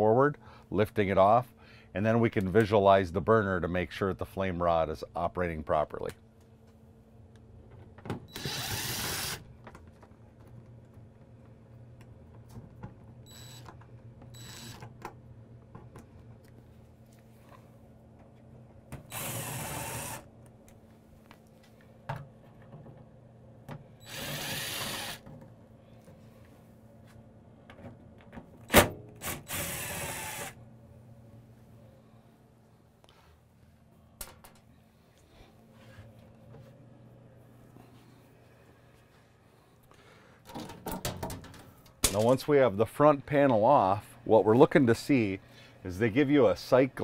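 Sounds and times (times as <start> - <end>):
drill driving out screws: 8.3 - 9.4, 19.1 - 20.2, 24.0 - 25.2, 29.2 - 30.6
drill trigger blips: 14.4 - 14.8, 29.5 - 30.6.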